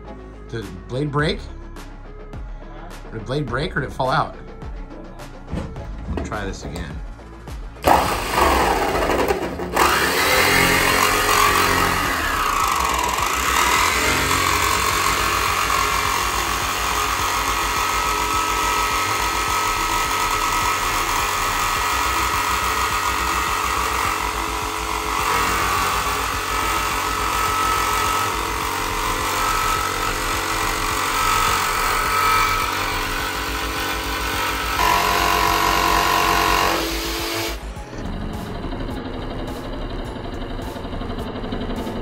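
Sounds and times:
jigsaw cutting sheet metal: 7.8s - 42.0s.

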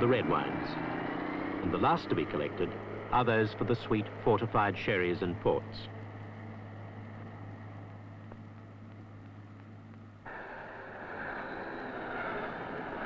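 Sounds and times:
low machine hum: 2.6s - 13.0s.

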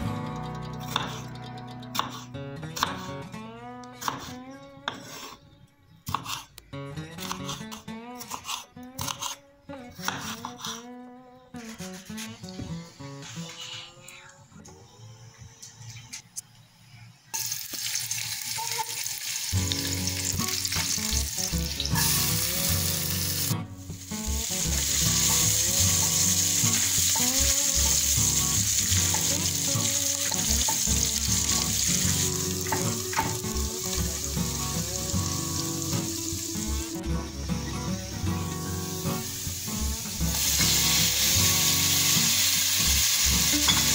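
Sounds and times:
vegetables sizzling in oil: 17.4s - 43.9s.

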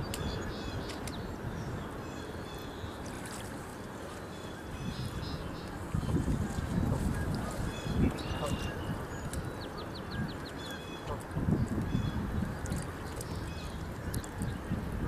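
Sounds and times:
distant birds calling: 0.0s - 14.6s
water sloshing around wading person: 2.9s - 9.6s.

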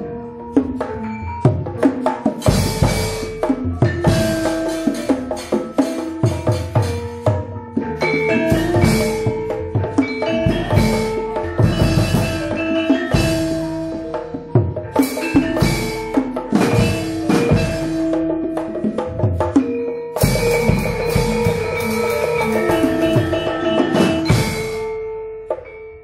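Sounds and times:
ringing tuned metal percussion: 0.0s - 26.0s
heavy struck accents: 2.4s - 25.8s
sharp drum strokes: 8.1s - 19.6s, 20.2s - 25.0s.

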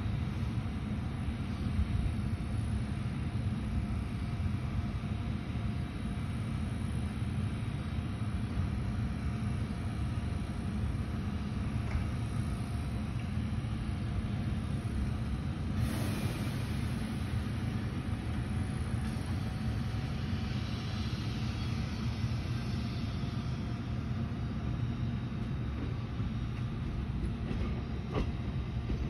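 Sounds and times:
train hiss: 0.0s - 29.0s
electric train rumbling past: 8.2s - 29.0s.

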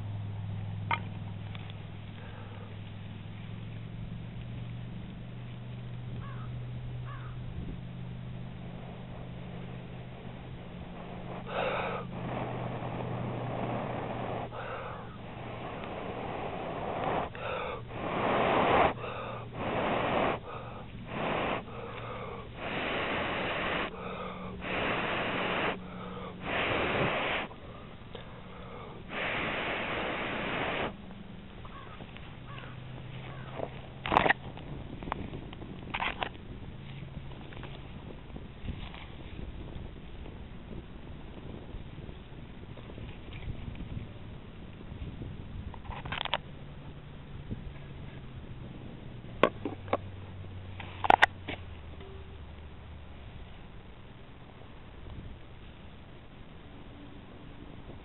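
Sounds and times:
person blowing into tinder: 9.4s - 31.0s.

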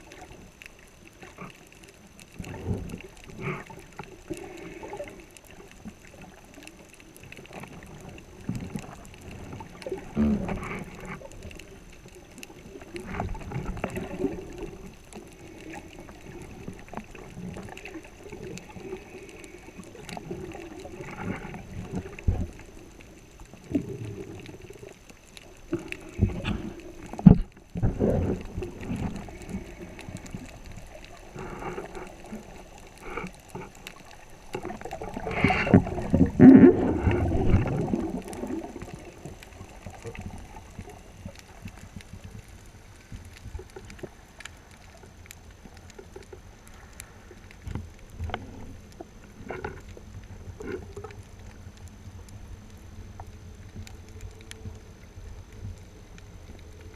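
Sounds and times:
underwater sloshing and knocks: 0.0s - 52.5s
faint underwater clicks: 0.0s - 56.9s
rush of water and bubbles: 0.0s - 56.9s.

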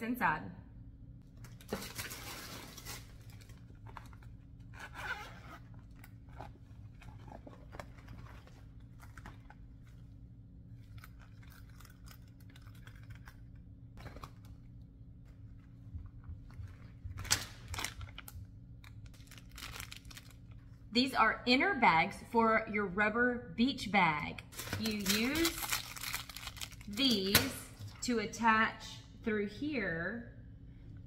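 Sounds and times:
low steady hum: 0.0s - 31.0s
plastic packaging crinkling: 1.3s - 4.8s, 16.8s - 20.6s, 24.5s - 27.4s.

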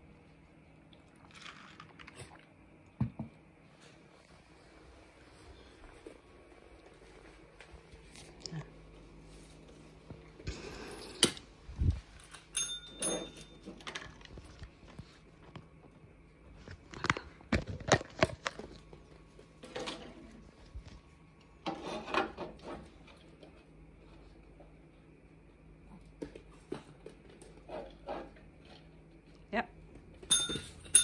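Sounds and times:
dog training bell ring: 12.5s - 13.7s, 30.3s - 31.0s.

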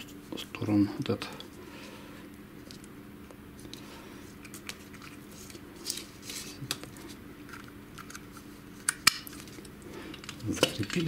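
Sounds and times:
low steady hum: 0.0s - 11.0s
plastic and metal parts clicking: 10.1s - 11.0s.

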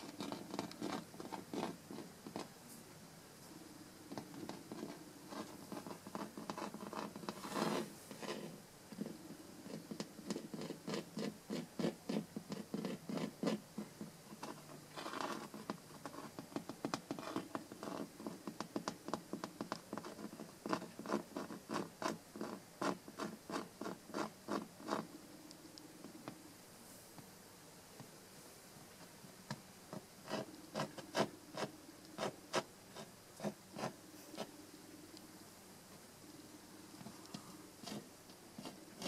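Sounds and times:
scratching on carpet: 4.1s - 16.4s, 30.0s - 34.5s, 37.0s - 39.0s.

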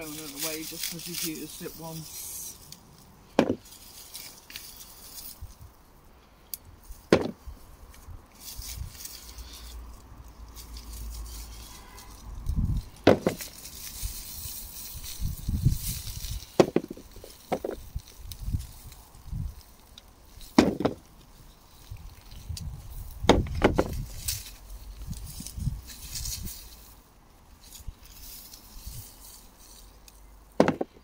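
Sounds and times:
rustling of plants and straw: 0.0s - 31.0s
dull thuds: 3.4s - 3.7s, 7.1s - 7.5s, 13.0s - 13.6s, 16.6s - 17.8s, 20.5s - 21.1s, 23.2s - 24.1s, 30.6s - 31.0s.

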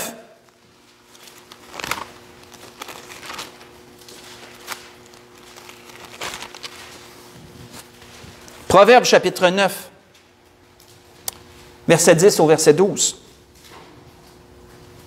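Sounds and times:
thin pages turning and rustling: 0.8s - 8.6s.

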